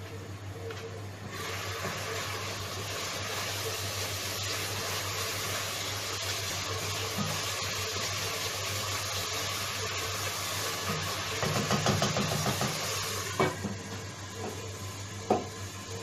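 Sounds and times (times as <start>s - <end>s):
sauce sizzling in a pot: 1.2s - 16.0s.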